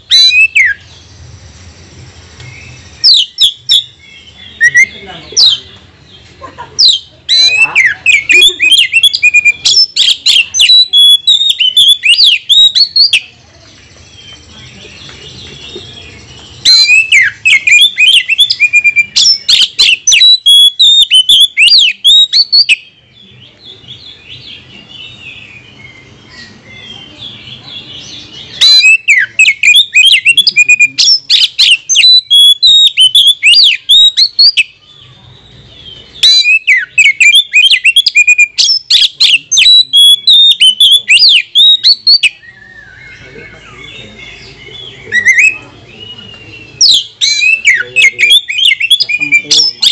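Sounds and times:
bird twittering: 0.0 - 1.3, 2.4 - 49.9
bird singing whistles and clicks: 8.3 - 15.2, 16.4 - 22.8, 28.6 - 34.7, 36.2 - 43.2, 45.2 - 49.9.

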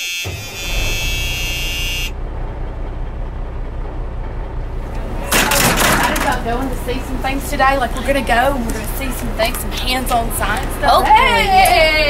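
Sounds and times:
buzzer-like electronic tone: 0.0 - 2.2
bus engine rumbling: 0.0 - 12.0.

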